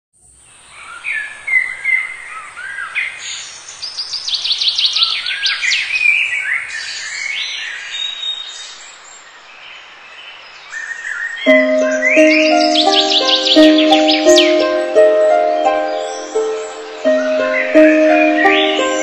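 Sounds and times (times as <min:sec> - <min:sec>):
birds singing and calling: 0:00.4 - 0:19.0
high falling bird notes: 0:11.5 - 0:19.0.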